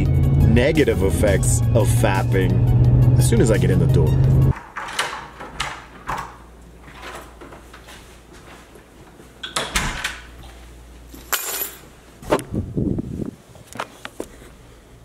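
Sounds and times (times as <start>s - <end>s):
front door opening and shutting: 4.5s - 7.8s, 9.4s - 10.4s
keys jangling on countertop: 11.1s - 11.9s.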